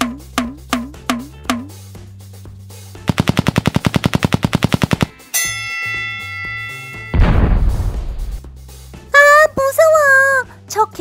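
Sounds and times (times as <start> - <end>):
drum track: 0.0 - 5.3
bright ringing tone: 5.2 - 7.5.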